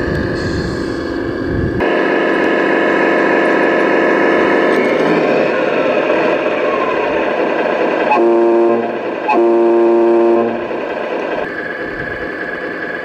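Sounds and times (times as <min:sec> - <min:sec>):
steady engine sound: 0:00.0 - 0:13.0
truck air horn blasts: 0:08.1 - 0:10.7.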